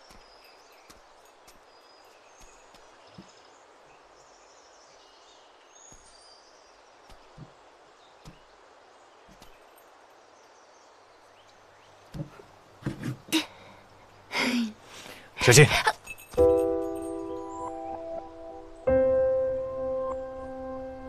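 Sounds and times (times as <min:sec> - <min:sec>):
distant bird chirps: 0:00.0 - 0:14.3, 0:16.0 - 0:21.0
soft knocks: 0:12.1 - 0:13.2.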